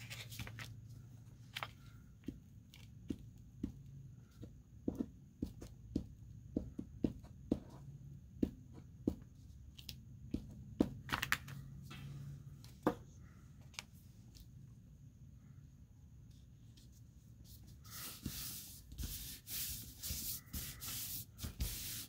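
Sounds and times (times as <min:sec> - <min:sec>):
paper rustling: 0:00.0 - 0:00.8, 0:01.4 - 0:02.0.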